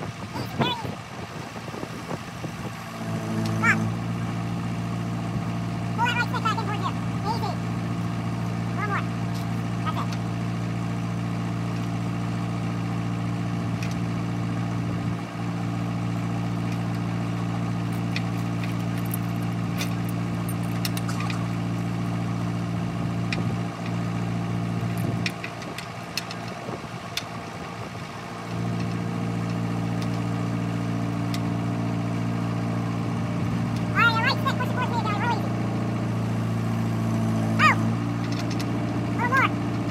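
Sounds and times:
tractor engine idling: 0.0 - 39.9
chain clinking: 18.1 - 21.4.

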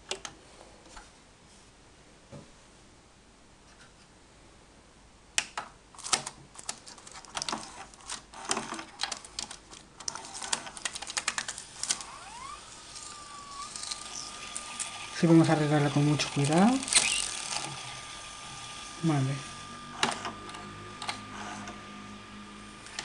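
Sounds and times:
small plastic clicks and crinkles: 5.4 - 15.0
faint rising whine: 11.8 - 23.0.

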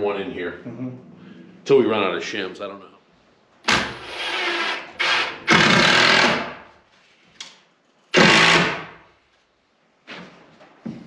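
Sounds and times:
power driver driving screws: 3.7 - 6.6, 8.1 - 8.9.

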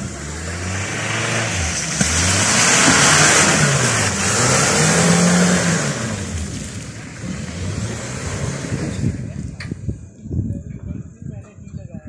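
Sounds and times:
engine revving hard: 0.0 - 9.3
wheels churning mud: 0.0 - 9.6.

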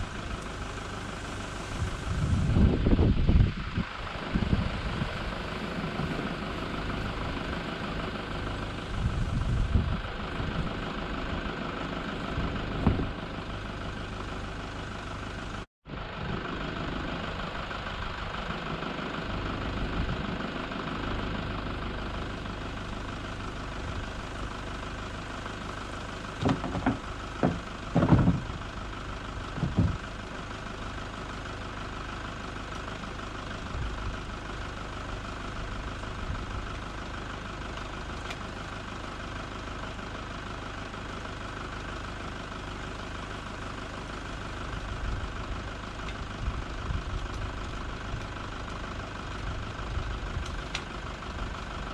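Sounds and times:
wind buffeting microphone: 1.7 - 6.4, 8.9 - 10.8, 29.6 - 30.0
short knocks: 26.4 - 28.5.

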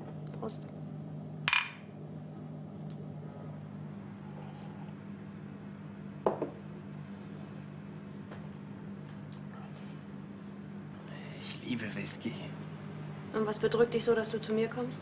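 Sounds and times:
steady low hum: 0.0 - 15.0
glass set down on counter: 6.2 - 6.6.

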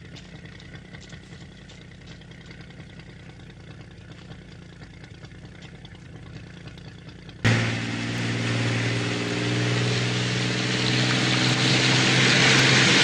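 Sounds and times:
motor humming with high whine: 7.5 - 13.0.

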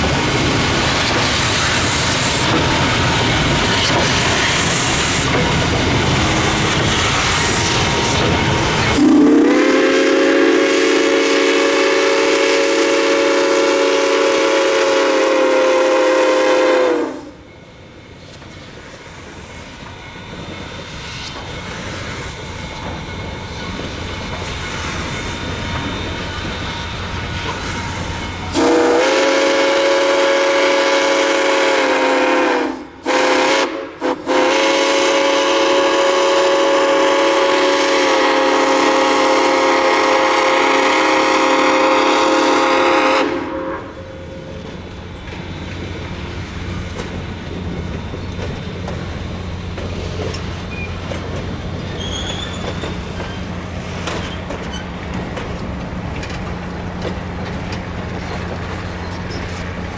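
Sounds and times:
steam locomotive working: 0.0 - 59.9
steam whistle chime blast: 8.9 - 17.5, 28.4 - 44.5.

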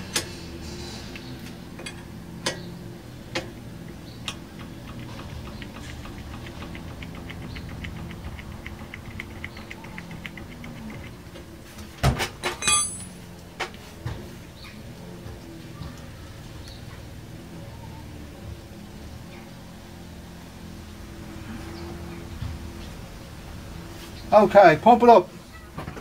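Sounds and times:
fast faint ticks: 3.3 - 11.5
louder metal clinks: 12.4 - 13.3.

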